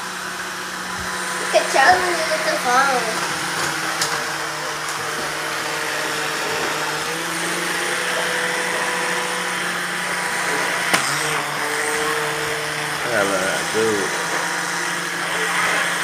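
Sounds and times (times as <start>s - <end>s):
toy electric motor humming: 0.0s - 16.0s.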